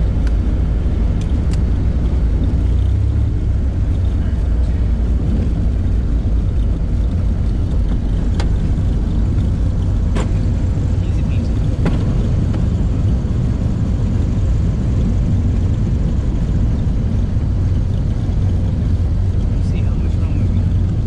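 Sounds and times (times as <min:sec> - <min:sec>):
propeller airplane engine drone: 0:00.0 - 0:21.0.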